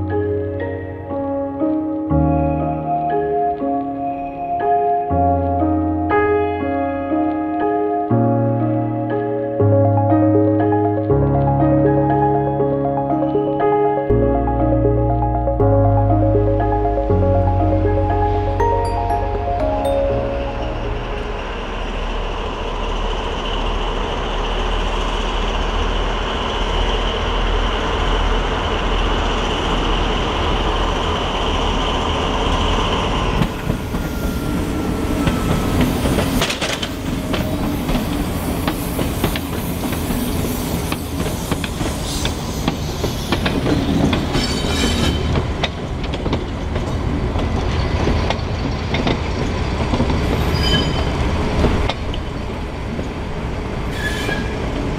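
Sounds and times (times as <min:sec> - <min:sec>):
locomotive engine drone: 0:14.2 - 0:43.0
wheels clicking over rail joints: 0:32.8 - 0:54.9
high wheel squeal: 0:50.3 - 0:51.4, 0:53.9 - 0:54.7.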